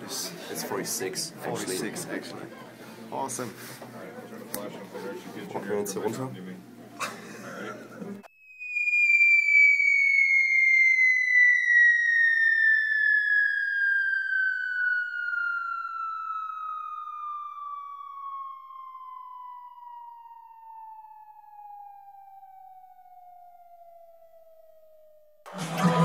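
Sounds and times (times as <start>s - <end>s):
falling electronic tone: 8.3s - 26.0s.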